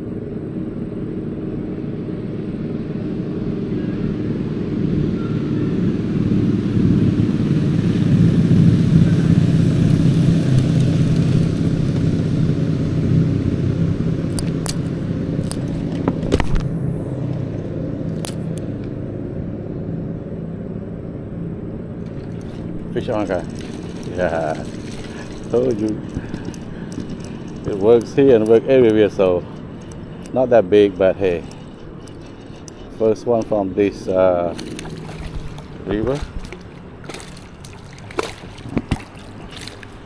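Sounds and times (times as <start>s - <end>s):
passing vehicle engine rumble: 0.0s - 40.0s
sharp clicks: 24.8s - 33.6s.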